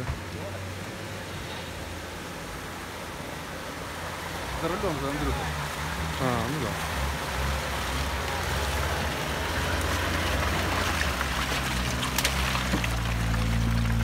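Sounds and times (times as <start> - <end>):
mud and water sloshing: 3.8 - 14.0.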